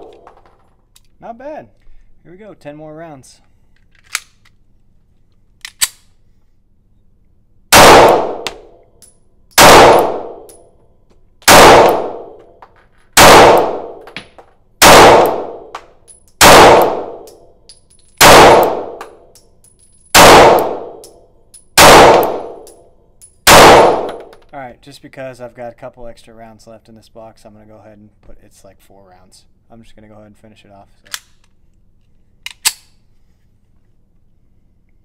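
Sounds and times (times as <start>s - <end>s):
pistol shots indoors: 0.0s - 0.5s, 7.7s - 8.8s, 9.5s - 10.8s, 11.4s - 24.4s
pistol clicks: 5.6s - 6.2s, 14.8s - 19.5s, 32.4s - 33.0s.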